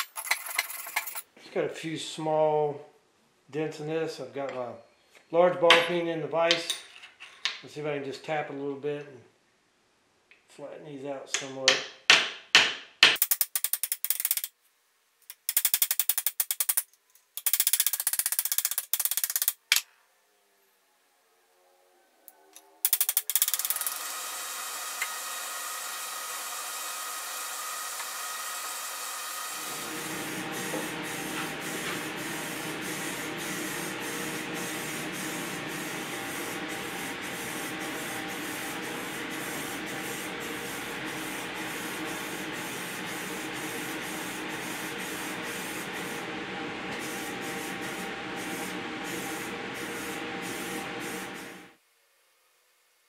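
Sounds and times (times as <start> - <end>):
spray paint hissing: 22.9 - 46.2, 46.9 - 51.8
box fan running: 23.2 - 51.8.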